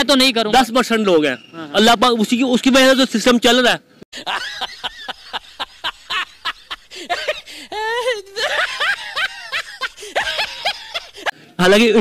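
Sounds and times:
person laughing: 4.2s - 11.3s.

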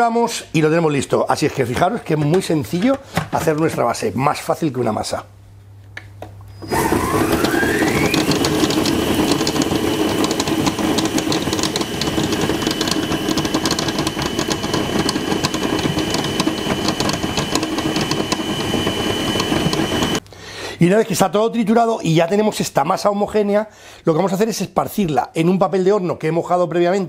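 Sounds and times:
food processor motor whine: 6.5s - 20.2s.

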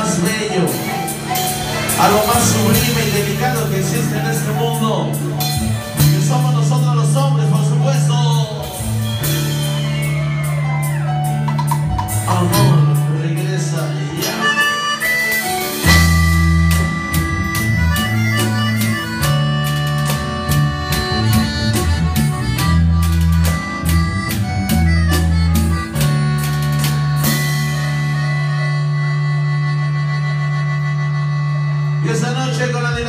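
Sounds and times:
accordion melody: 0.0s - 33.0s
drums: 0.0s - 33.0s
electric bass: 0.0s - 33.0s.

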